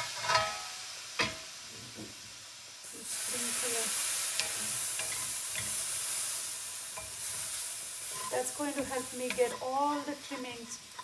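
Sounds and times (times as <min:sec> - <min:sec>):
broth sizzling in hot skillet: 0:00.0 - 0:11.0
wooden spoon scraping a pan: 0:04.4 - 0:05.8, 0:07.0 - 0:11.0.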